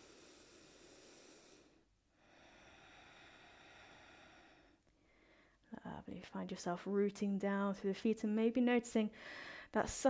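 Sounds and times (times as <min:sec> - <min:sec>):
slow breathing: 0:00.0 - 0:05.6, 0:09.2 - 0:09.7.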